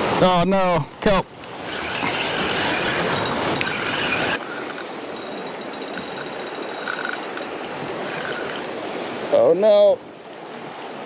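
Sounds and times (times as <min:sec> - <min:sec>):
wind: 0:00.0 - 0:11.0
fishing reel clicking rapidly: 0:01.6 - 0:08.7.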